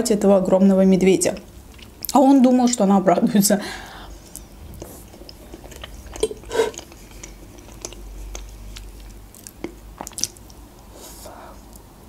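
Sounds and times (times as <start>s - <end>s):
chewing cake: 4.2s - 11.8s
wet mouth sound: 4.3s - 11.8s.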